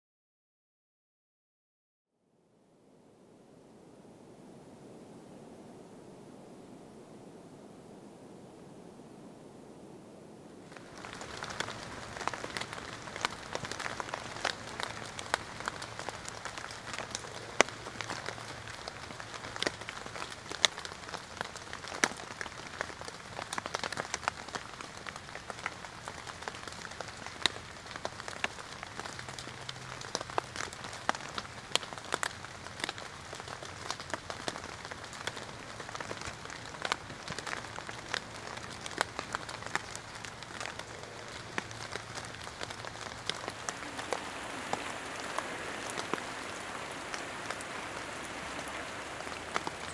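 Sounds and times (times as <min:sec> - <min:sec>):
rain falling in forest: 0:02.9 - 0:49.9
close raindrops striking: 0:10.6 - 0:49.9.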